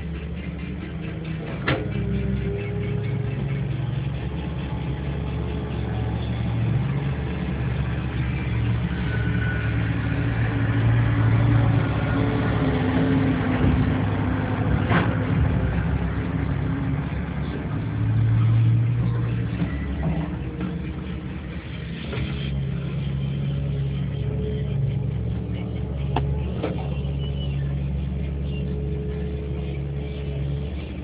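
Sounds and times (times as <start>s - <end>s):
truck diesel engine running: 0.0s - 31.0s.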